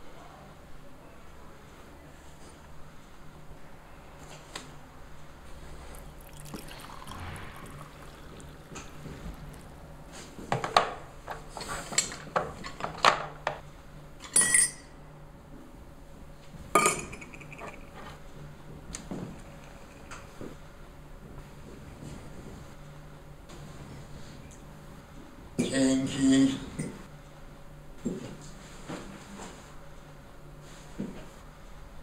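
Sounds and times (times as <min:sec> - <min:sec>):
water pouring into glass: 0:05.7 - 0:10.2
spoon clinking against glass: 0:14.3 - 0:14.9.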